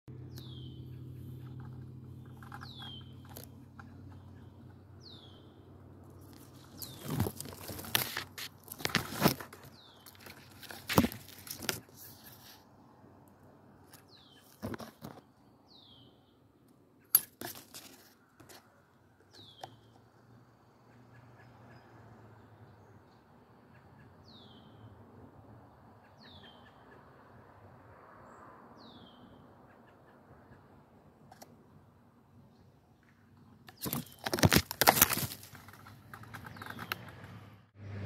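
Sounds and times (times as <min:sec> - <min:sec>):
leaves and twigs rustling: 0:06.0 - 0:12.7, 0:13.8 - 0:15.3, 0:17.1 - 0:19.4, 0:33.7 - 0:37.4.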